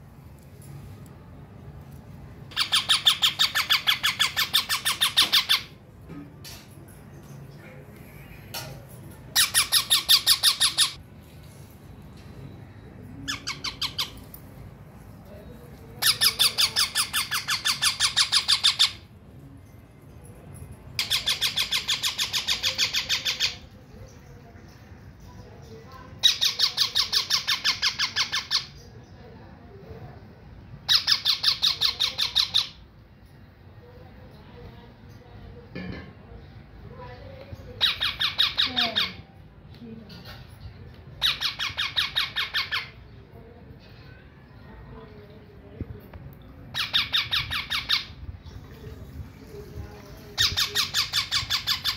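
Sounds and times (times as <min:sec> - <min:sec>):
parakeets squawking: 0:02.5 - 0:05.8, 0:09.3 - 0:11.0, 0:13.3 - 0:14.2, 0:16.0 - 0:19.0, 0:21.0 - 0:23.7, 0:26.2 - 0:28.8, 0:30.9 - 0:32.8, 0:37.8 - 0:39.2, 0:41.2 - 0:43.0, 0:46.7 - 0:48.2, 0:50.4 - 0:51.9.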